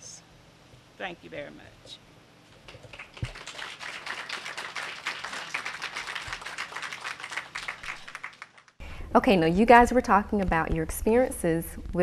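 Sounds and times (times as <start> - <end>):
audience applauding: 2.7 - 8.8.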